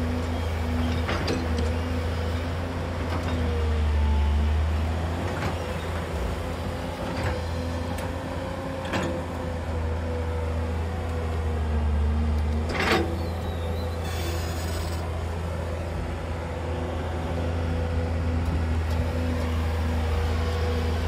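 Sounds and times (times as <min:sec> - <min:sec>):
excavator diesel engine running: 0:00.0 - 0:21.0
hydraulic whine: 0:12.7 - 0:15.2.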